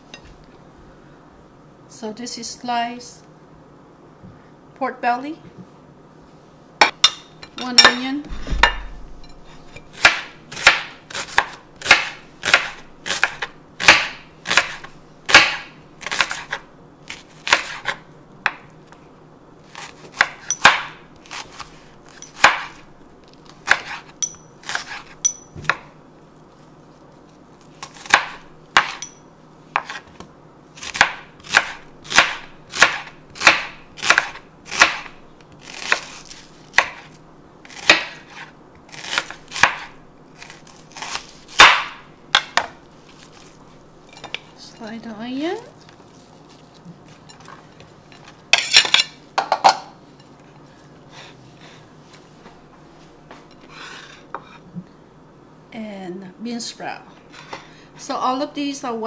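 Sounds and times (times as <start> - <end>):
knife slicing onion on board: 7.8 - 18.7, 19.6 - 22.8, 23.4 - 25.9, 27.6 - 29.1, 29.7 - 44.5, 53.3 - 54.6.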